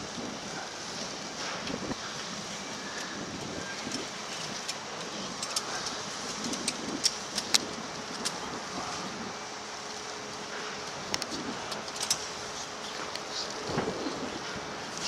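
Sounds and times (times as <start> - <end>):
wind on microphone: 0.0 - 9.6, 10.2 - 11.9, 12.7 - 15.0
harness gear clicking: 2.9 - 8.5, 11.1 - 12.4.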